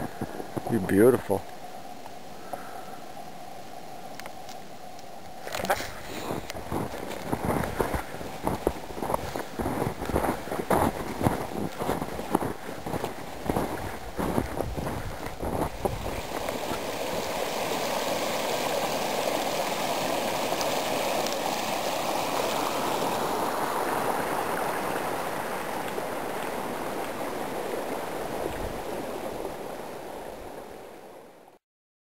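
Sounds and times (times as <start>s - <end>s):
brook running: 0.0s - 2.9s, 5.2s - 31.5s
footsteps crunching in snow: 5.7s - 18.6s.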